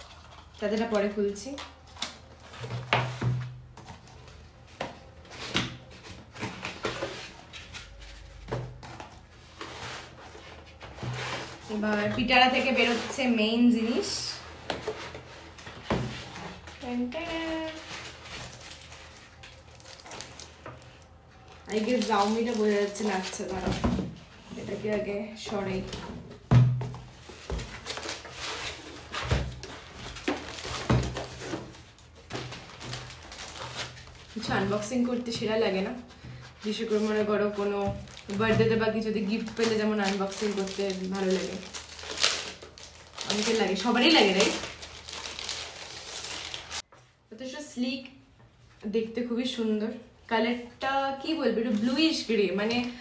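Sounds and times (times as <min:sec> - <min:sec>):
packing rustling: 0:14.8 - 0:23.8, 0:36.8 - 0:46.8.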